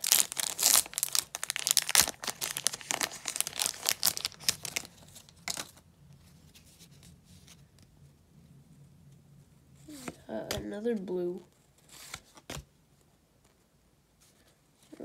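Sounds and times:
wrapper crinkling as torn open: 0.0s - 5.8s.

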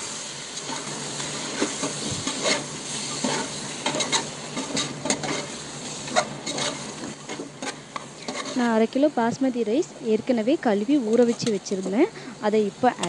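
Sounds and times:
gravy sizzling in a pot: 0.0s - 13.0s
spoon scraping a pot: 1.5s - 8.7s.

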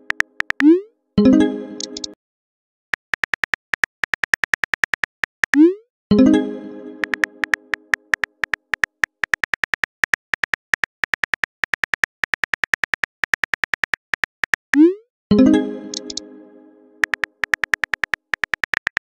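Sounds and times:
phone keyboard typing clicks: 0.0s - 0.7s, 1.8s - 2.2s, 3.0s - 5.7s, 7.0s - 14.9s, 15.9s - 16.2s, 17.0s - 19.0s.

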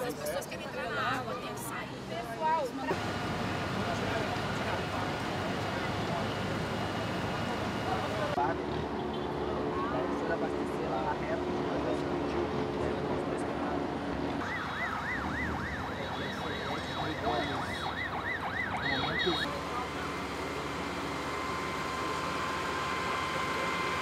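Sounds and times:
siren wailing: 14.4s - 19.6s, 21.0s - 24.0s.

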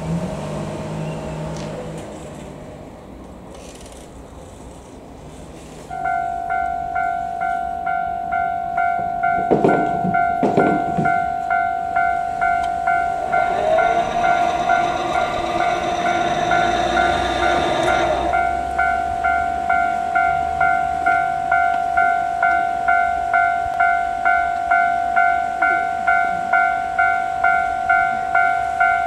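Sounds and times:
approaching train: 0.0s - 29.0s
level crossing warning bell: 5.9s - 29.0s.

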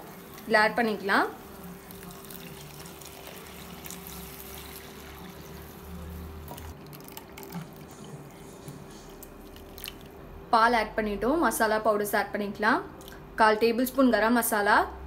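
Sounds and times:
milk pouring into a clay pot: 1.4s - 10.2s.

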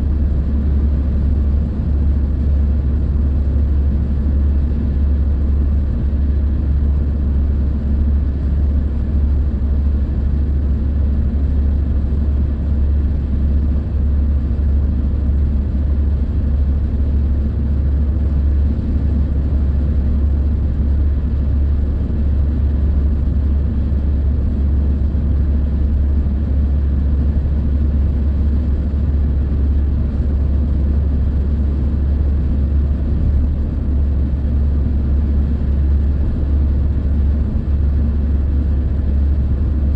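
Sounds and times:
car cabin road rumble: 30.2s - 39.9s.

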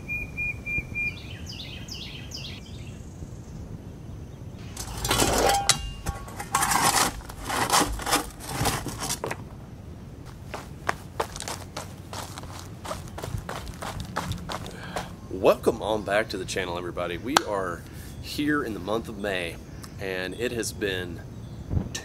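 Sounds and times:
footsteps on gravel: 4.7s - 9.4s, 10.3s - 15.3s.

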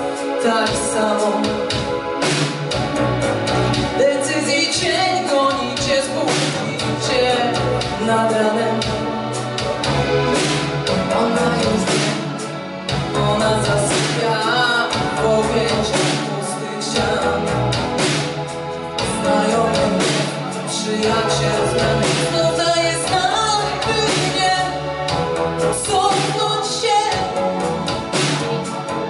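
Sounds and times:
drum kit and keyboard: 0.0s - 29.0s
woman singing into microphone: 0.4s - 2.0s, 4.0s - 9.2s, 11.0s - 12.3s, 13.0s - 17.9s, 19.0s - 24.8s, 25.8s - 27.4s.

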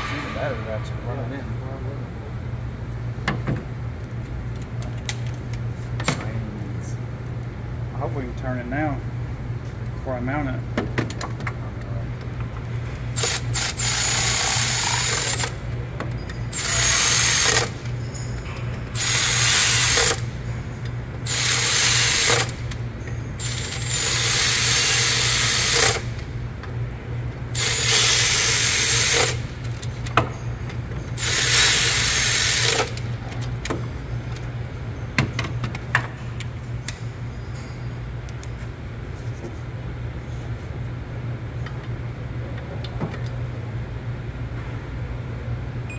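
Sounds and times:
steady low hum: 0.0s - 45.9s
electric ratchet whirring: 13.2s - 15.6s, 16.5s - 17.8s, 18.9s - 20.3s, 21.2s - 22.8s, 23.4s - 26.2s, 27.5s - 29.8s, 31.2s - 33.1s.

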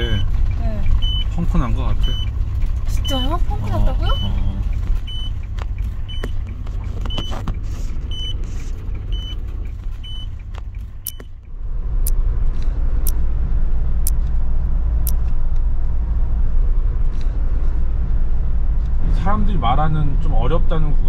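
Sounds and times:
road rumble inside vehicle: 0.0s - 21.0s
sharp ticks: 8.0s - 11.6s
short high beeps: 11.0s - 11.4s.

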